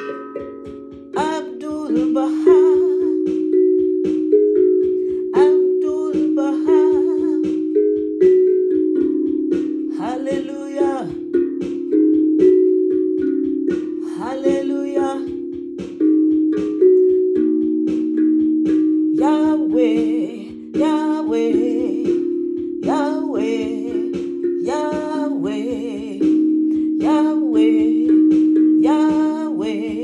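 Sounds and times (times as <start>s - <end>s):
steel tongue drum melody: 0.0s - 30.0s
woman singing: 1.1s - 3.5s, 5.2s - 7.8s, 9.9s - 11.3s, 14.0s - 15.5s, 19.2s - 30.0s.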